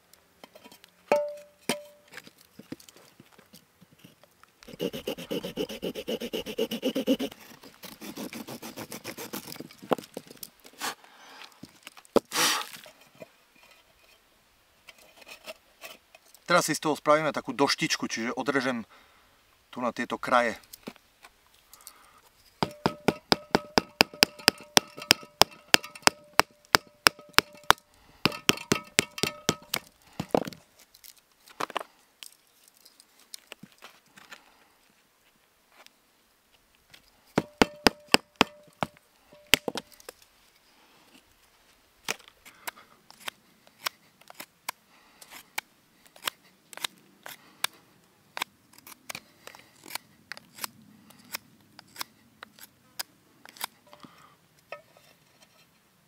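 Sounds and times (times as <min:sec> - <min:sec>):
hand saw cutting wood: 0:04.7 - 0:09.6, 0:12.2 - 0:12.8.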